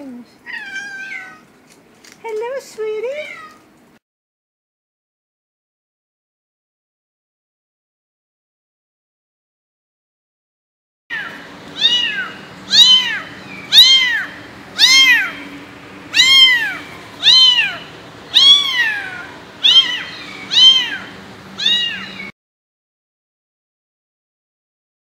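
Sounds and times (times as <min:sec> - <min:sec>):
kitten meowing: 0:00.4 - 0:01.4, 0:11.1 - 0:15.5, 0:16.1 - 0:22.3.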